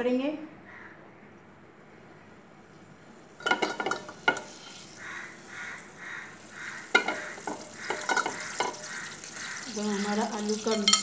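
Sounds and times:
butter sizzling in pot: 3.2 - 11.0
spoon clinking and scraping pot: 3.4 - 4.9, 6.8 - 11.0.

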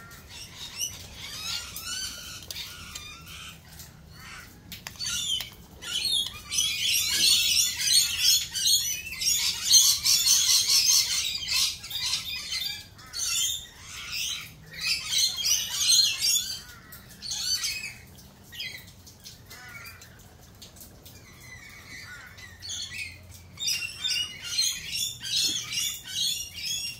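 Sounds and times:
birds squawking and chattering: 0.0 - 26.9.

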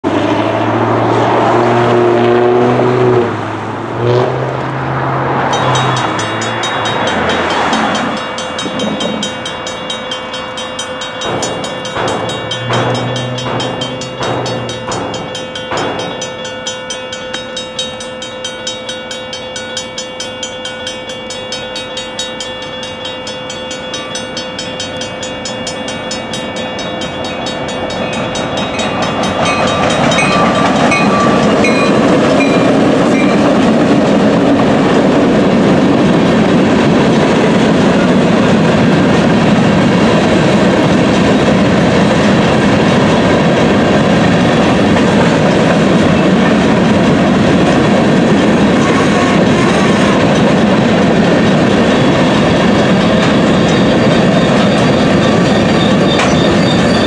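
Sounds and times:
train rumble: 0.0 - 57.0
crossing bell ringing: 5.0 - 57.0
low droning sound: 11.2 - 16.4.

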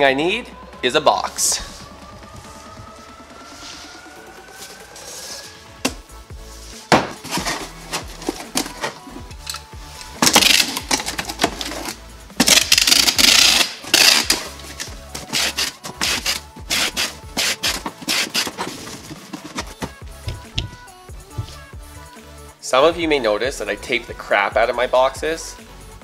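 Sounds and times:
background music: 0.0 - 26.0
tape dispenser clicks: 10.2 - 18.7
packing tape screeching off dispenser: 10.2 - 19.0.

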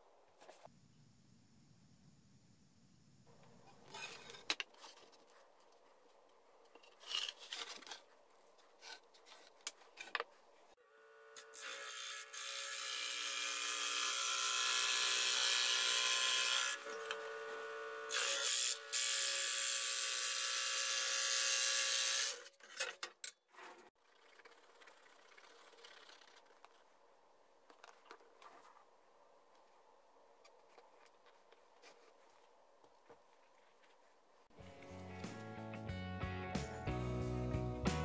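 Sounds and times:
scroll saw cutting plywood: 11.0 - 22.5.

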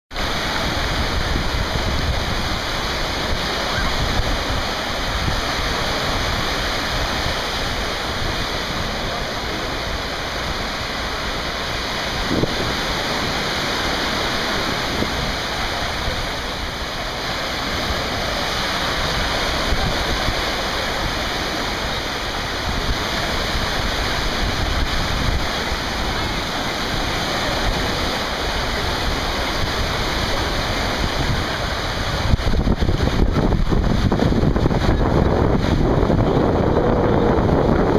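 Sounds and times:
waves washing on beach: 0.1 - 37.9
wind rumble on microphone: 0.1 - 37.9.

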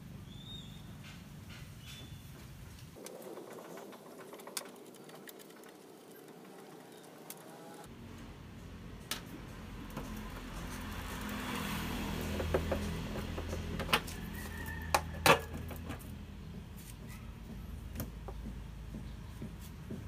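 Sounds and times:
engine cover being handled: 9.2 - 16.2.

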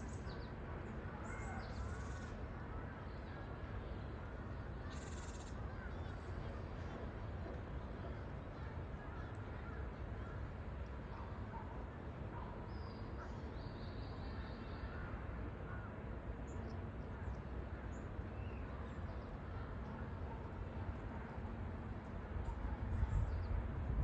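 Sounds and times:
low background rumble: 0.0 - 24.0
wild bird calls: 0.9 - 3.5, 4.2 - 6.5.

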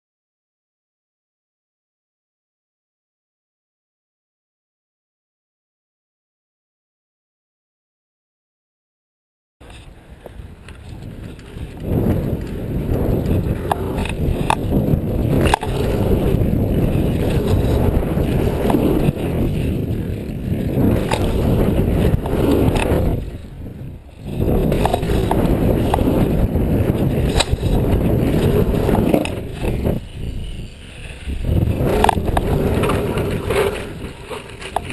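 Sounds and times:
bike rattles and knocks: 9.6 - 34.9
bike tyre noise: 9.6 - 34.9
wind on microphone: 9.6 - 34.9.

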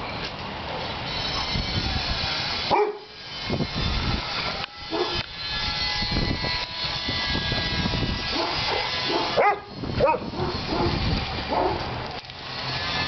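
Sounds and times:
dog barking: 2.7 - 3.0, 4.9 - 5.2, 8.4 - 11.8.

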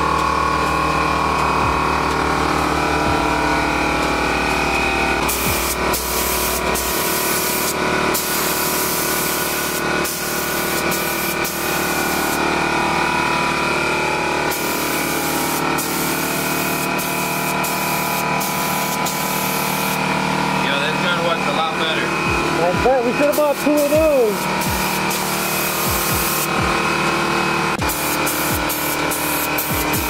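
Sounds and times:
steady tones: 0.0 - 8.7, 11.8 - 28.7
paint spray gun hissing: 3.6 - 13.1, 14.3 - 20.2, 23.1 - 30.0.

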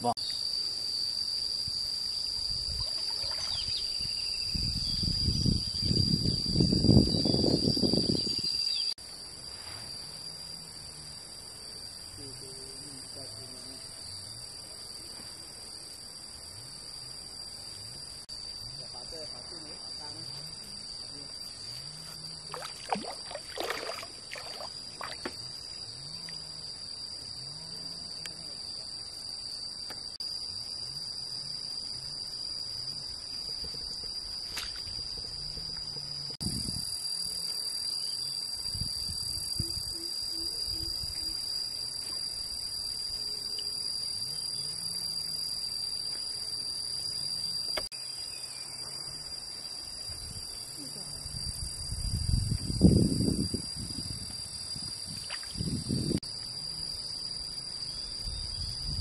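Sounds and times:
insects droning: 0.0 - 59.0
water sloshing: 2.8 - 3.7, 22.5 - 25.4.

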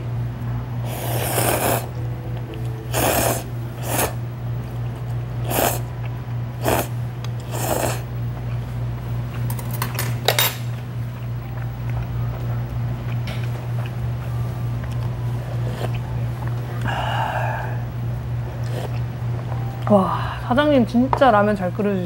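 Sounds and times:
low hum: 0.0 - 21.8
person slurping noodles: 0.8 - 1.9, 2.9 - 4.2, 5.4 - 5.9, 6.6 - 8.1.

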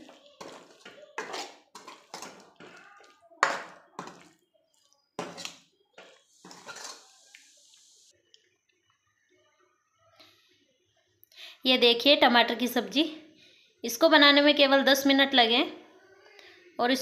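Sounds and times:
ladle scraping metal pot: 0.0 - 4.3, 5.2 - 7.8.

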